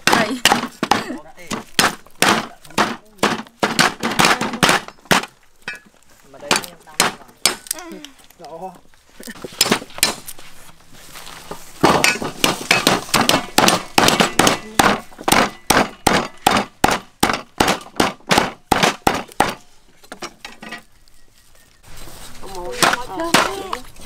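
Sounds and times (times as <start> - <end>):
wooden pestle pounding on board: 0.0 - 5.3, 11.8 - 19.6.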